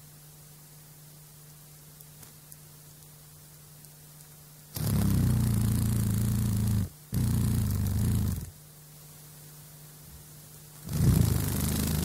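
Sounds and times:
faint hiss: 0.0 - 12.0
dragonfly wings buzzing: 4.8 - 8.5, 10.8 - 12.0.

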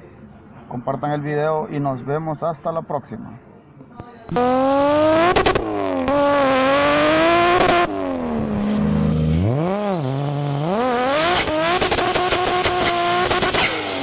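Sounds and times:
car engine revving: 4.3 - 14.0.

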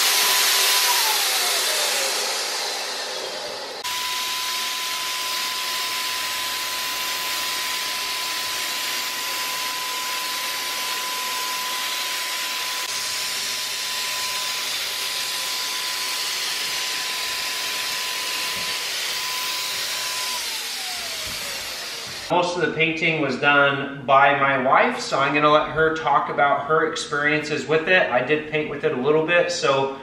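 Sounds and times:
turbine motor whine: 0.0 - 22.3.

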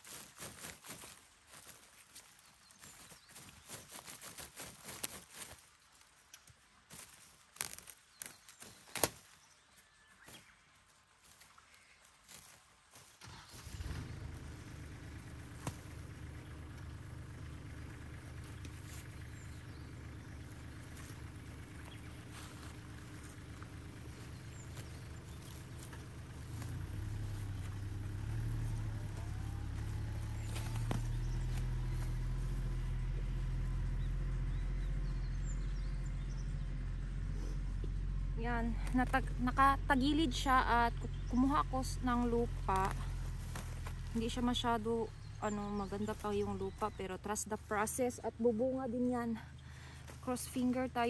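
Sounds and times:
plastic film crinkling: 0.0 - 9.5
soil scraping: 0.0 - 10.6, 11.2 - 34.6, 37.2 - 51.0
low steady rumble: 0.0 - 51.0.

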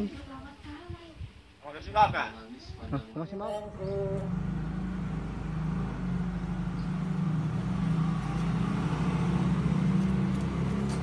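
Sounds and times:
motor engine humming: 3.7 - 11.0.

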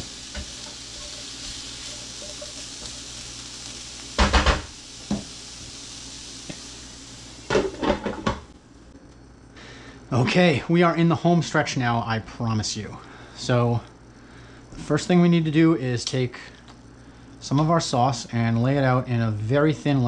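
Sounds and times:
spatula stirring and scraping: 0.0 - 2.9
broccoli sizzling in a skillet: 0.0 - 8.6.

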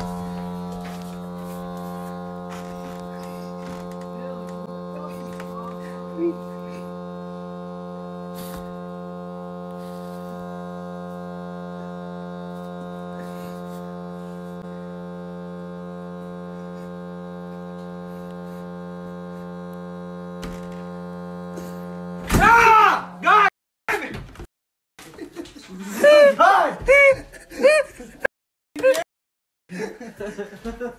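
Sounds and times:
steady hum: 0.0 - 23.5
person yelling loudly: 22.3 - 23.5, 26.0 - 27.1.

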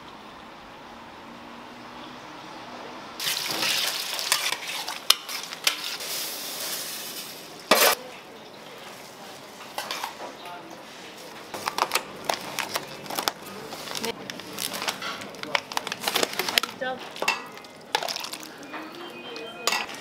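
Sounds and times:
food sizzling in a pan: 3.2 - 8.0
metal utensil clinking on pan: 17.2 - 19.0, 19.6 - 20.0.

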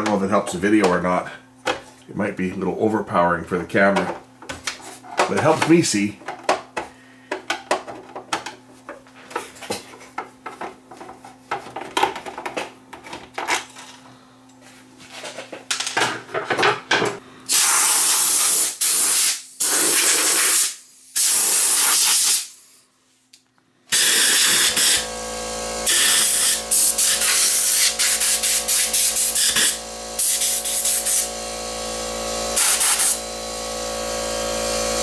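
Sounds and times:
compressed air blow gun hissing: 17.5 - 22.5.

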